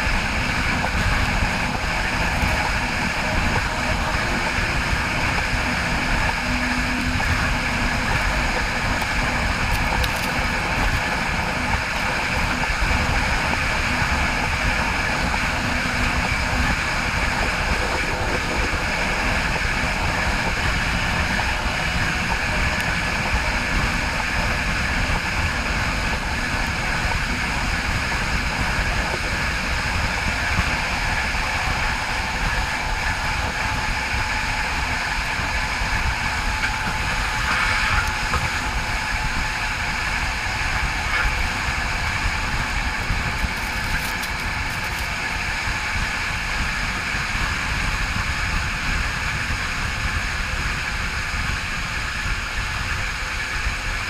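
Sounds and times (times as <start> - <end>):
thin high whine: 0.0 - 54.0
train wheels rolling on rails: 0.0 - 54.0.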